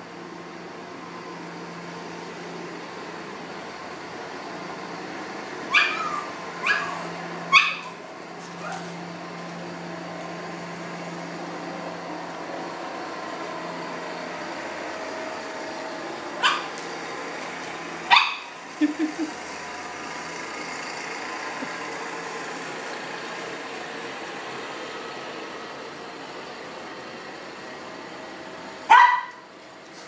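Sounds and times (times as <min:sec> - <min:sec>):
dog barking high yaps: 0:05.7 - 0:09.0, 0:16.4 - 0:16.8, 0:18.1 - 0:18.6, 0:28.9 - 0:29.4.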